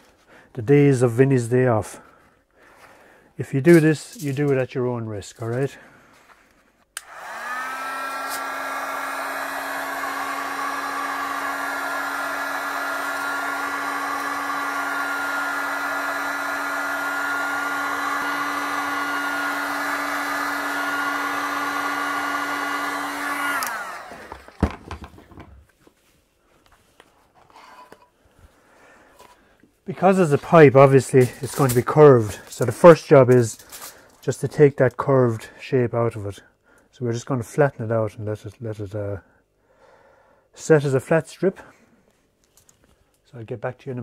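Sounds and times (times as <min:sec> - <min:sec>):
heat gun fan motor running: 0:07.0 - 0:24.6.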